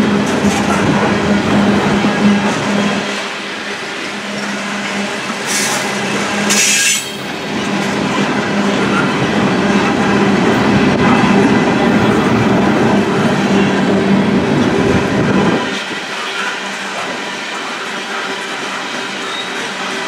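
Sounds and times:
steel wheels rolling on rails: 0:00.0 - 0:20.0
high-pitched wheel squeals: 0:04.7 - 0:07.3, 0:17.8 - 0:20.0.

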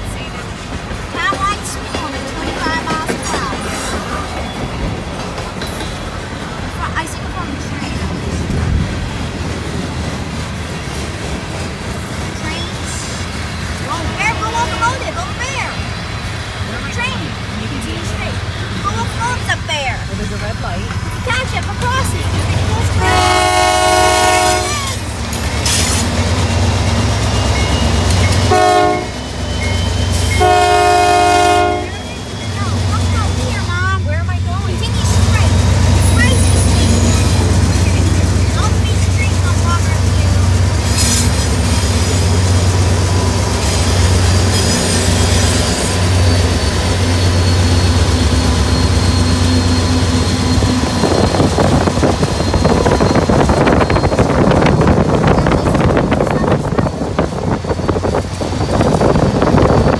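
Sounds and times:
low locomotive rumble: 0:00.0 - 0:59.9
diesel locomotive horn: 0:13.9 - 0:15.3, 0:22.6 - 0:25.1, 0:27.8 - 0:33.4.

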